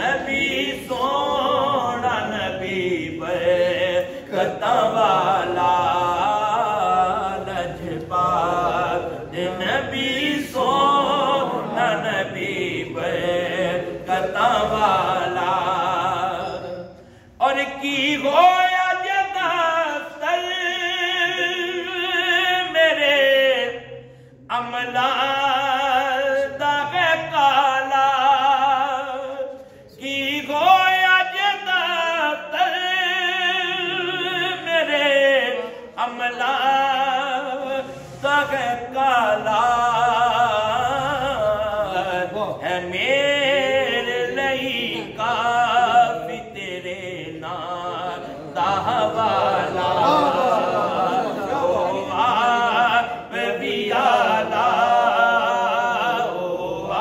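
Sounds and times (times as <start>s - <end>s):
man singing unaccompanied: 0.0s - 16.7s, 17.4s - 57.0s.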